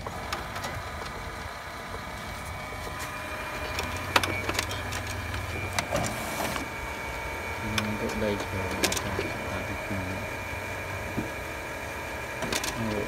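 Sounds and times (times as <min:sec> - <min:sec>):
laser printer humming and whining: 0:00.0 - 0:13.0
printer sharp clicks: 0:03.5 - 0:06.7, 0:07.7 - 0:09.3, 0:12.3 - 0:13.0.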